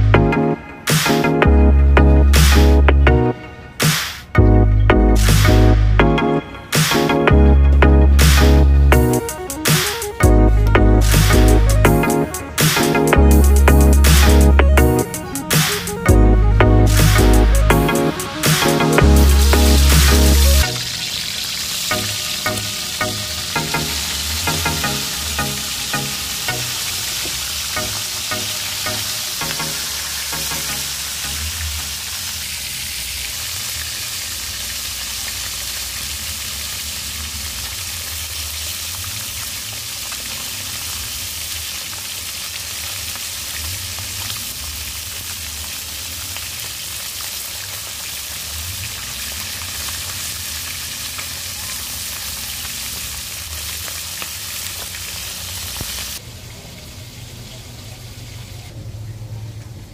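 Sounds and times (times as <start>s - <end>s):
fish sizzling in hot oil: 17.0s - 58.7s.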